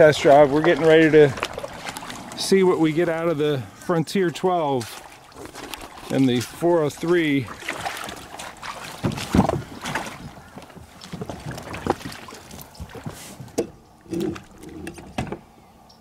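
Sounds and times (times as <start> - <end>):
water sloshing: 0.0 - 15.6
knocks and scrapes on plastic kayak: 7.7 - 15.5.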